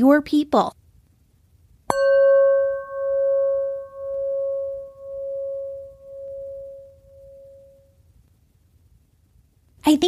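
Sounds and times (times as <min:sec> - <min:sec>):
bell ringing with slow wobble: 0:01.9 - 0:07.9.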